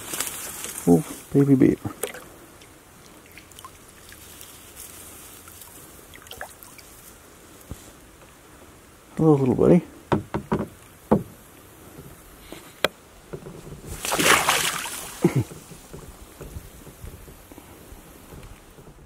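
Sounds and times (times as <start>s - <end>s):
beaver splashing into water: 1.9s - 2.3s, 5.5s - 6.8s, 13.9s - 15.5s
sharp knocks: 10.1s - 11.4s.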